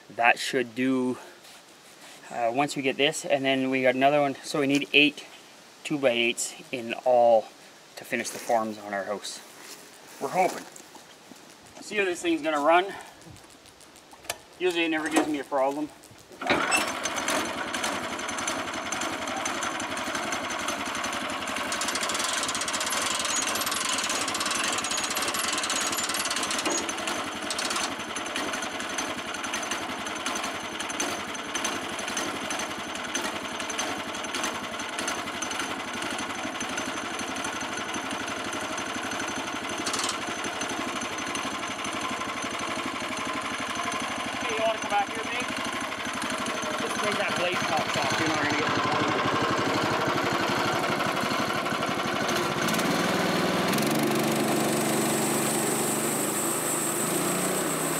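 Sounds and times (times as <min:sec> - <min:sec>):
small engine running rattly: 0:11.6 - 0:57.9.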